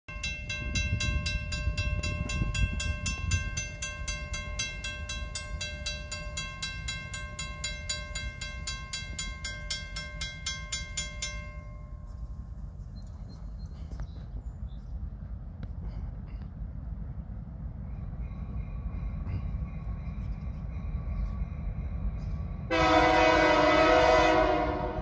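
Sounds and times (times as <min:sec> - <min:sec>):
railroad crossing bell ringing: 0:00.1 - 0:12.6, 0:18.1 - 0:25.0.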